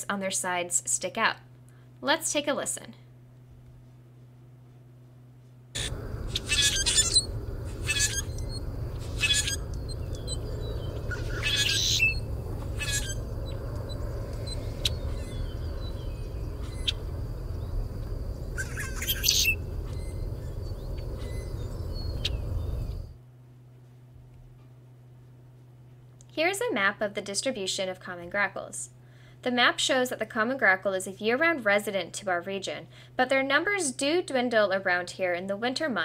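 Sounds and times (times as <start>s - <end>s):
steady low hiss: 0.0s - 36.0s
bird squeaky screechy calls: 5.8s - 17.8s, 18.4s - 23.1s.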